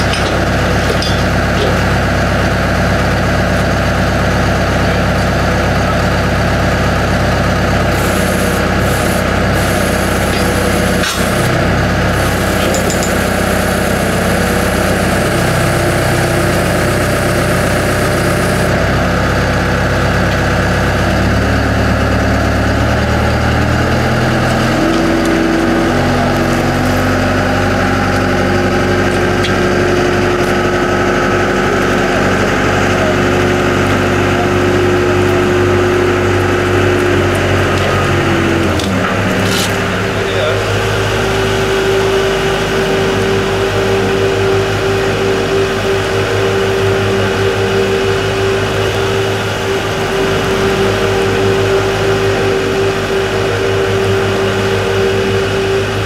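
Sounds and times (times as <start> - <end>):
heavy engine running: 0.0 - 56.0.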